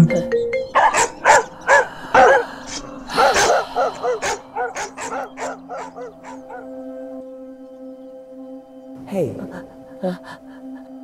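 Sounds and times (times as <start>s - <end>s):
dog barking: 0.8s - 6.8s.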